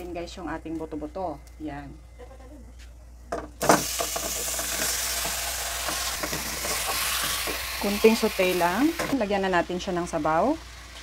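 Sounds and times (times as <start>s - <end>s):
meat sizzling in hot oil: 3.6s - 11.0s.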